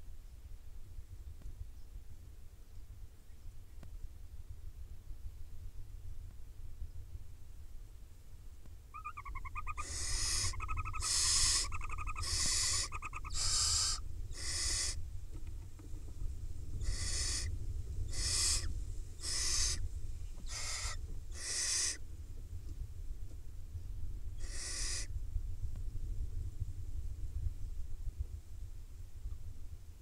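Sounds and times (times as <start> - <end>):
fast pulsed twittering trill: 9.0 - 15.0, 16.8 - 19.8
owl chicks rasping hissing calls: 9.0 - 15.0, 16.8 - 22.0, 24.4 - 25.1.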